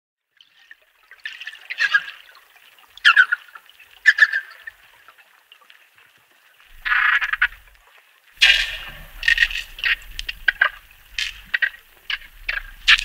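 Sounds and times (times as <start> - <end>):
dolphins pulsed calls underwater: 0.4 - 5.1, 6.7 - 7.8, 8.4 - 13.0.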